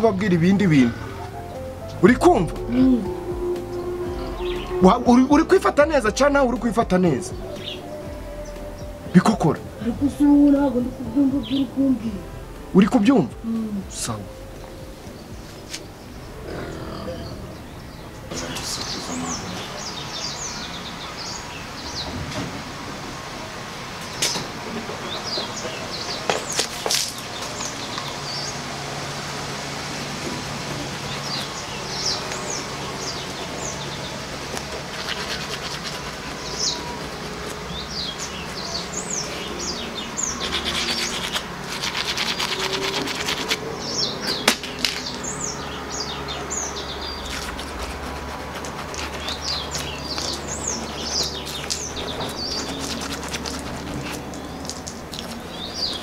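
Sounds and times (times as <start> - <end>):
small birds chirping: 0.0 - 22.3, 24.0 - 28.8, 30.8 - 56.0
toothbrush scrubbing teeth: 34.5 - 38.7, 40.2 - 43.6, 47.0 - 56.0.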